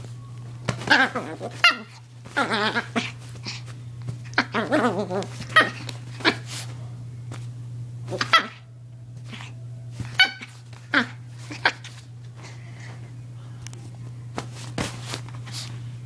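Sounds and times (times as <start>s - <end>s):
steady low hum: 0.0s - 16.0s
small dog growling and snarling: 0.8s - 6.5s, 10.2s - 12.0s.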